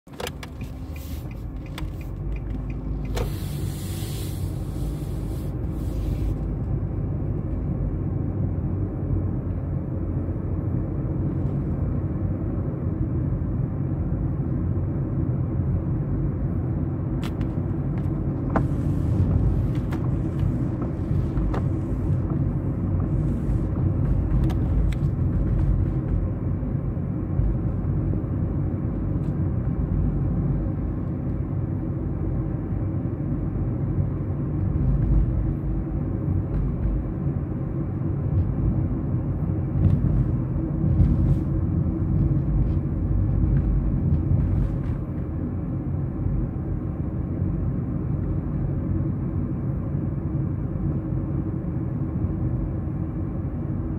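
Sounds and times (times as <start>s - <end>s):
car cabin road and engine rumble: 0.0s - 53.9s
brief hiss: 3.1s - 6.3s.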